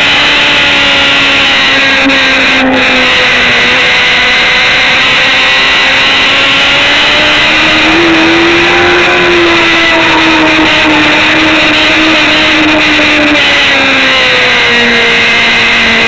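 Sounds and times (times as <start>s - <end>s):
motorcycle engine at high revs: 0.0s - 16.0s
wind rush: 5.4s - 13.9s.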